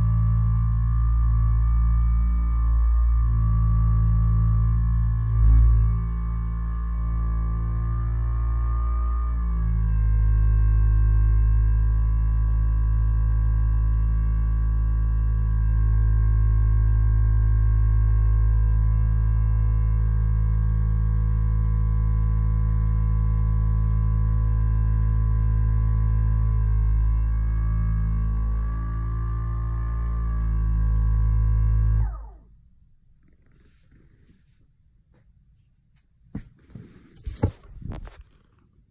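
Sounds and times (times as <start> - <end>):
vibrating foam roller humming: 0.0 - 35.2, 36.3 - 38.9.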